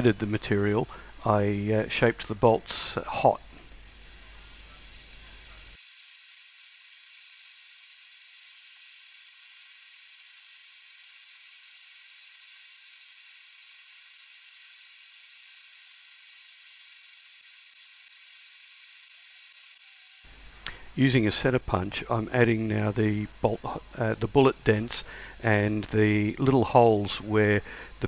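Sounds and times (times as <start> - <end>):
faint high hiss: 0.0 - 5.8, 20.3 - 28.0.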